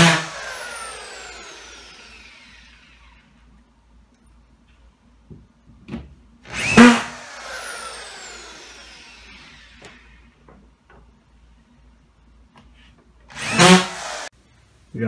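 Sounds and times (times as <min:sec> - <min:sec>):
screw gun motor whining: 0:13.3 - 0:14.3.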